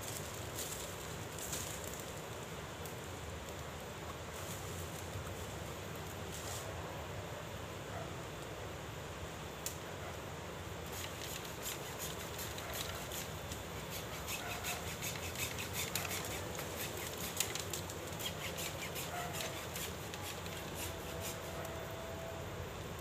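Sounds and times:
dry bamboo leaves crackling: 0.0s - 6.8s, 10.9s - 21.8s.

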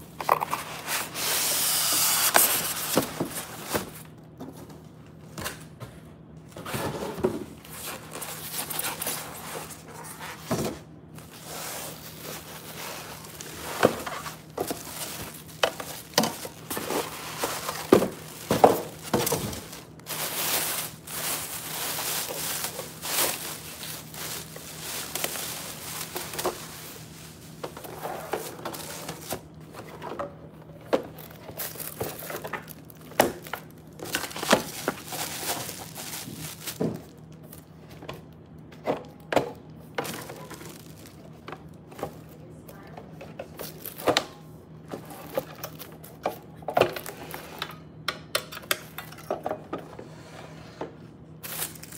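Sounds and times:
styrofoam and cardboard scraping: 0.5s - 3.9s, 11.2s - 29.4s
plastic wrapping crinkling: 7.6s - 10.2s, 11.1s - 29.8s, 30.9s - 42.8s, 51.4s - 51.9s.

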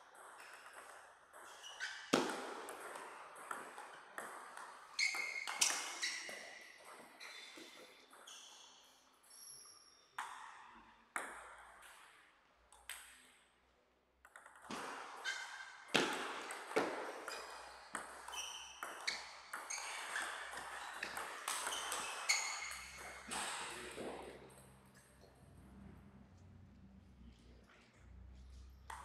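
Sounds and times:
table tennis ball hits: 0.2s - 6.4s, 14.2s - 24.7s.

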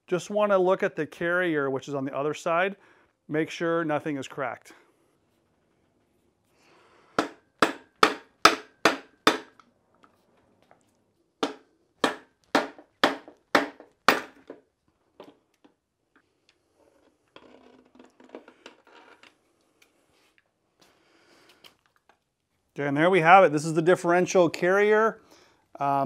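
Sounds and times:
rubber mallet striking steel shaft: 7.2s - 9.6s, 11.4s - 14.5s
rattling and handling noise: 16.8s - 19.4s.

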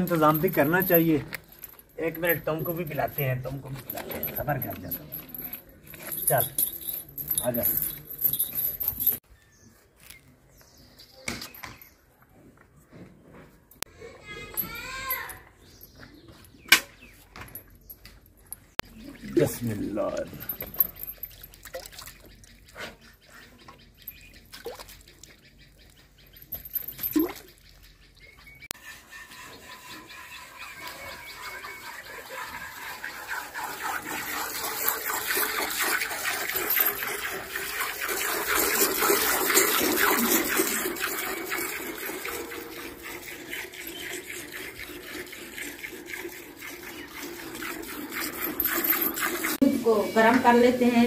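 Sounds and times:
milk squirting into steel bucket: 32.0s - 49.6s.

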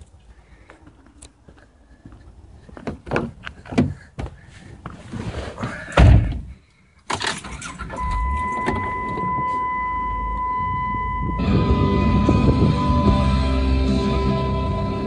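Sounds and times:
steady electronic tone: 8.0s - 15.0s
low rumble: 8.1s - 15.0s.

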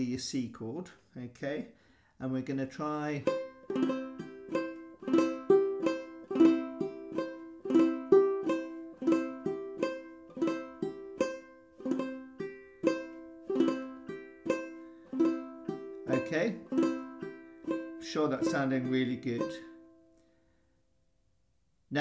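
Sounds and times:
banjo ukulele strumming and plucking: 3.2s - 20.1s.

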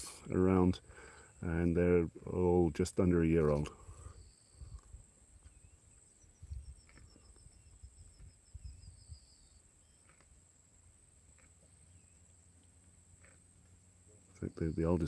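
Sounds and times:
high-pitched insect hum: 3.5s - 15.0s.

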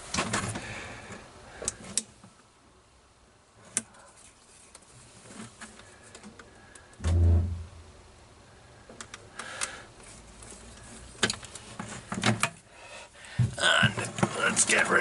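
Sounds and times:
dull low thump: 7.0s - 7.8s.

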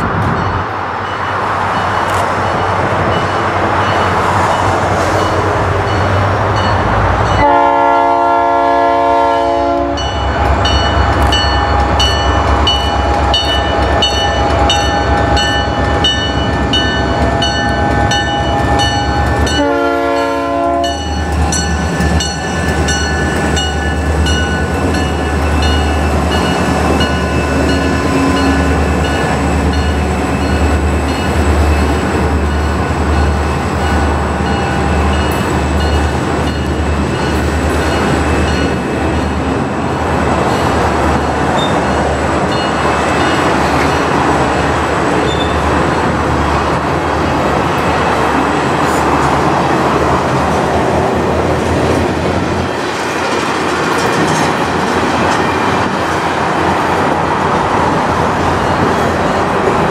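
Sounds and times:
pulsing rumble of wheels on rail: 0.0s - 59.9s
locomotive chord horn blasts: 7.4s - 10.3s, 17.4s - 21.6s
locomotive bell ringing: 9.9s - 39.6s, 40.5s - 44.2s.

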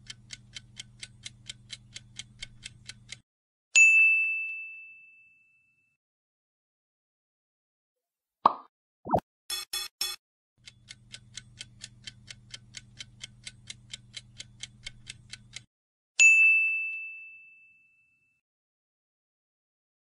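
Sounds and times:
clock-like ticking: 0.0s - 3.2s, 9.5s - 15.7s.

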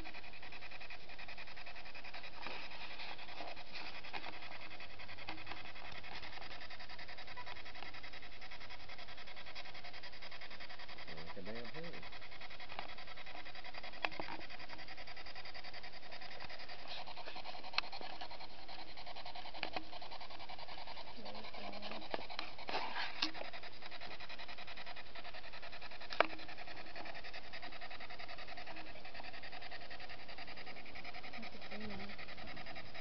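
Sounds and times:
static clicks: 12.6s - 14.9s.

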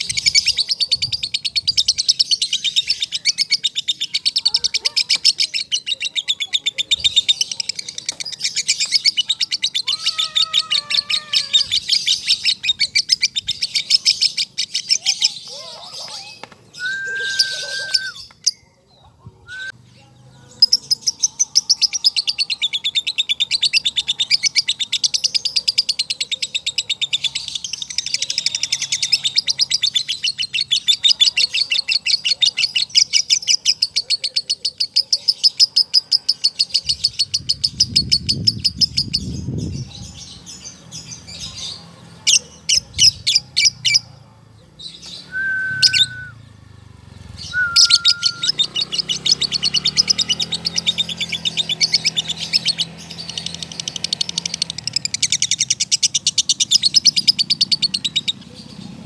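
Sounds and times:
lovebird rapid chirping: 20.6s - 44.2s, 44.8s - 46.4s, 47.2s - 58.5s
short whistled notes: 45.3s - 46.4s, 47.5s - 48.4s.

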